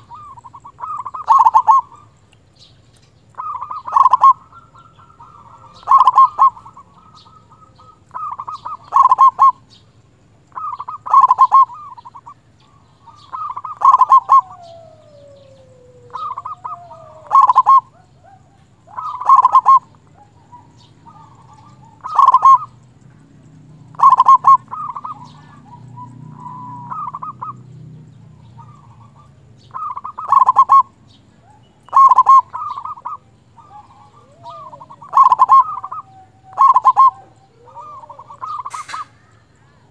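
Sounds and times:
dove cooing: 0.0 - 2.7, 3.3 - 39.9.

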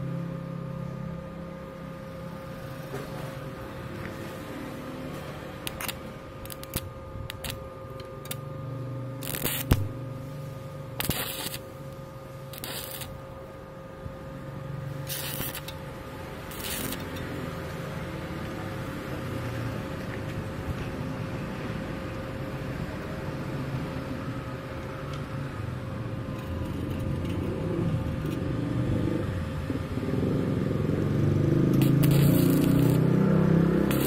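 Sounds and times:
steady hum: 0.0 - 34.0
welding arc crackling: 4.7 - 8.5, 9.2 - 13.6, 14.8 - 17.7, 26.2 - 28.5, 31.6 - 34.0.

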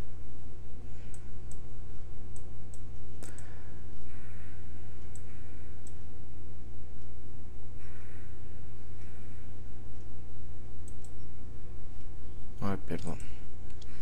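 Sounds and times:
steady low hum: 0.0 - 14.0
computer mouse clicking: 2.3 - 4.2, 10.8 - 11.3.

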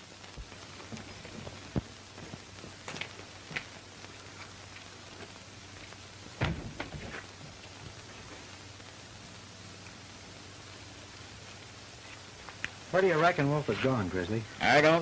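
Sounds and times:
pops and crackles: 0.0 - 9.1, 11.2 - 12.9
film soundtrack hiss: 0.0 - 15.0.

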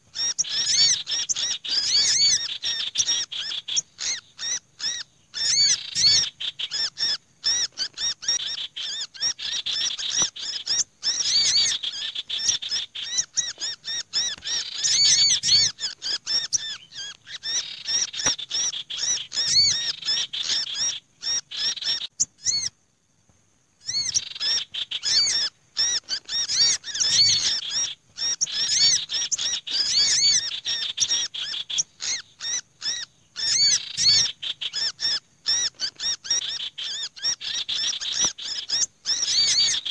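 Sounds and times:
birds twittering: 0.0 - 22.8, 23.8 - 39.9
high bird chirps and trills: 0.0 - 22.8, 23.8 - 39.9
harsh bird chattering: 0.2 - 22.7, 23.8 - 39.9.

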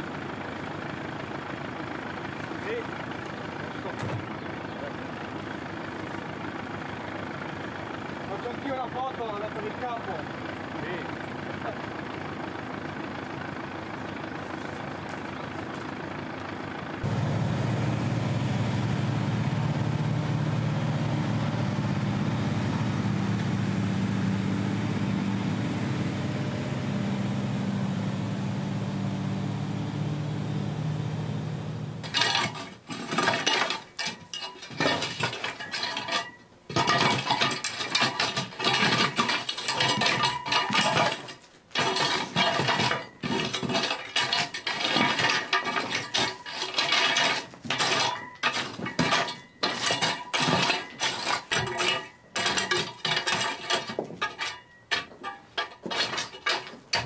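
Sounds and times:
truck engine running: 0.0 - 32.2
rake scraping over gravelly earth: 32.0 - 57.0.

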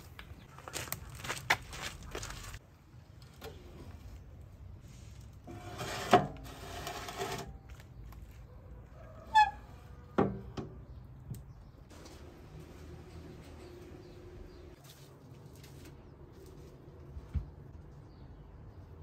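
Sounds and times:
metal tray scraping into oven: 5.5 - 7.5.

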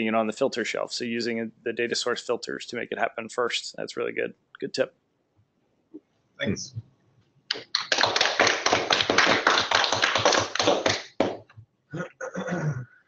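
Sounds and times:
small group clapping: 7.5 - 11.5.

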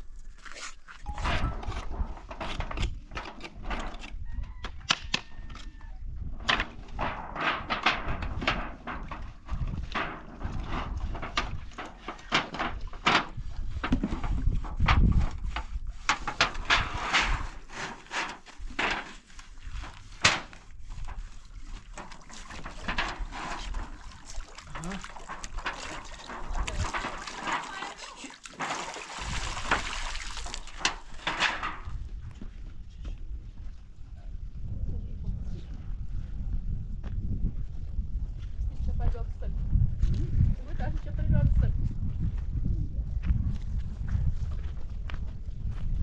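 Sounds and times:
wooden boards knocking and cracking: 6.4 - 15.0, 20.2 - 20.6, 28.5 - 31.9
wooden boards being scrubbed: 16.1 - 19.3.

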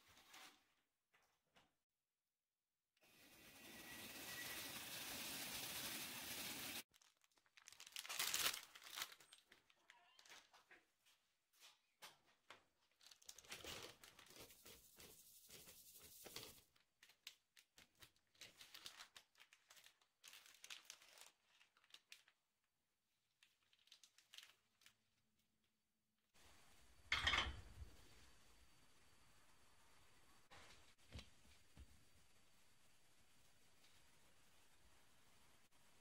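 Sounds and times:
plastic bag crinkling: 6.9 - 10.6, 12.8 - 14.6, 16.6 - 22.4, 23.4 - 25.0.

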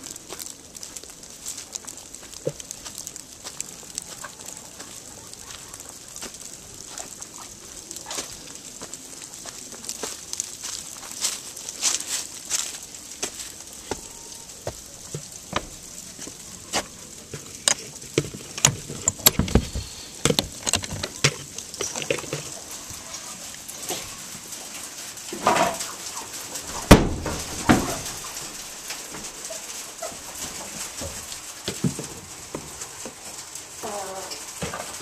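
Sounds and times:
footsteps on wooden deck: 0.3 - 7.1, 8.0 - 22.6.

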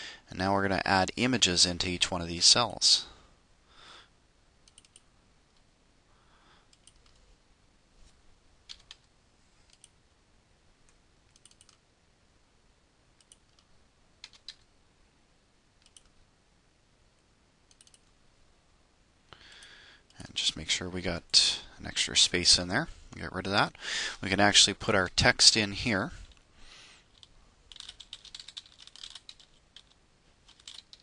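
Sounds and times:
computer mouse clicks: 4.6 - 5.7, 6.7 - 7.2, 9.7 - 10.0, 10.9 - 11.8, 13.2 - 14.7, 15.8 - 16.2, 17.7 - 18.2.

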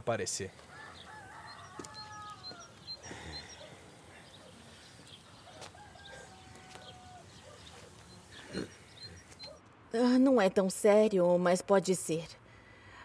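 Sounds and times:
small birds chirping: 0.0 - 9.6
chickens clucking: 0.5 - 9.6
rooster crowing: 0.6 - 9.6.

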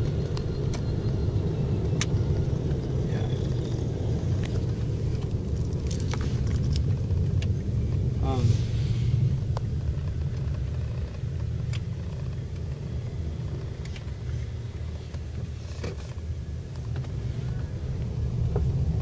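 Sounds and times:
engine and road rumble: 0.0 - 19.0.

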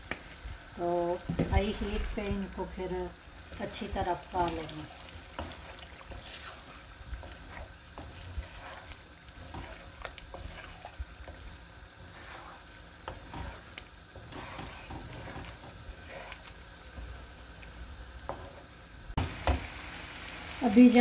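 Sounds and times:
faint steady sizzle: 0.0 - 21.0
wooden spatula scraping pan: 1.3 - 2.5, 3.5 - 17.2, 18.2 - 18.8.

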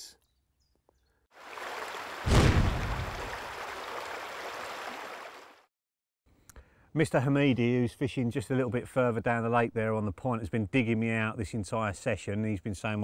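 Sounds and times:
watery rushing whoosh: 1.4 - 5.5.

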